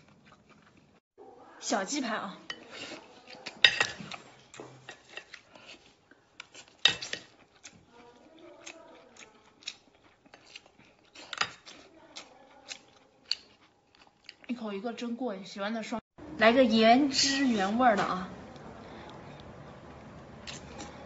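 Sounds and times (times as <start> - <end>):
chewing soft seafood: 0.0 - 1.0, 2.5 - 15.1, 18.4 - 21.0.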